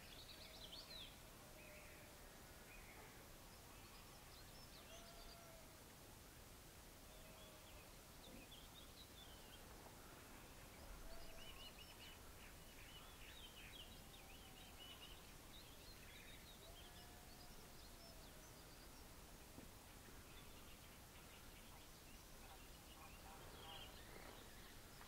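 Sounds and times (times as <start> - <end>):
faint low bird calls: 0.2 - 5.8, 7.1 - 25.0
small birds chirping: 7.1 - 25.0.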